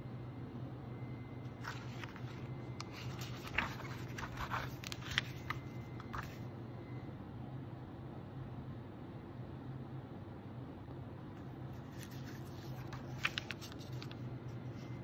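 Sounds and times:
low steady hum: 0.0 - 15.0
booklet pages turning: 1.5 - 6.4, 11.7 - 15.0.

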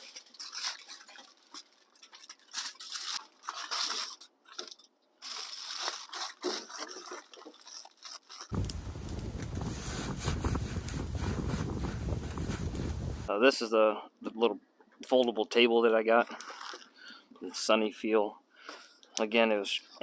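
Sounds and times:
aluminium foil crinkling: 0.0 - 10.0
wind rumbling on microphone: 8.5 - 13.3.

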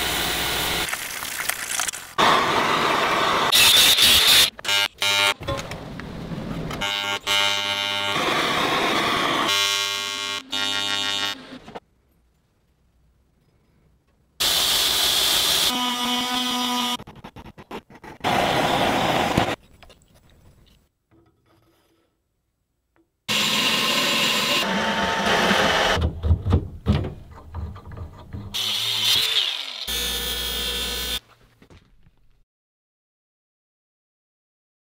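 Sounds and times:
power tools running: 6.8 - 11.8, 23.3 - 26.0, 28.6 - 31.2
sharp clicks and knocks: 26.0 - 28.6.

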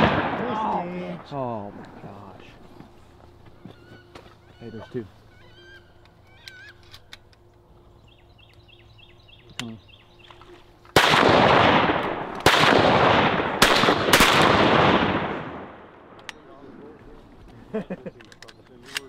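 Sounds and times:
shotgun blasts echoing: 0.0 - 1.9, 11.0 - 16.2.

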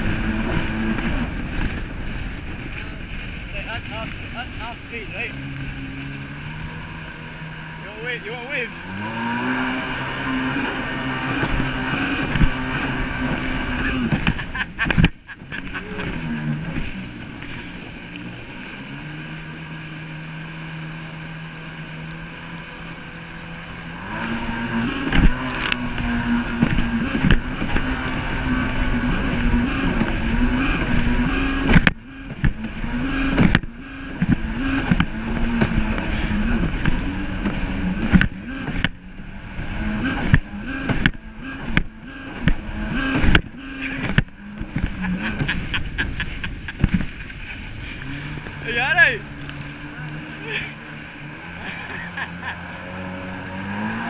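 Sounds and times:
jet ski engine revving: 0.0 - 54.0
hull knocking on waves: 11.3 - 17.6, 25.0 - 39.3, 40.1 - 49.9.

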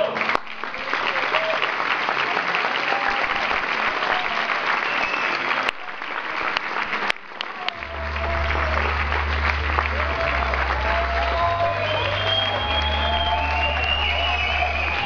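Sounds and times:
audience applauding: 0.0 - 15.0
music: 7.6 - 15.0.

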